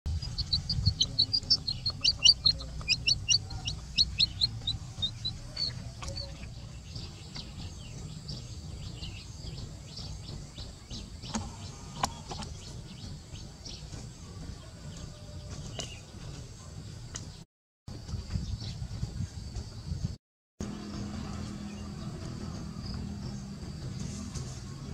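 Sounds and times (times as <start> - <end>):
baby chick peeping: 0.1 - 16.1
low outdoor rumble: 0.1 - 20.0, 20.6 - 24.9.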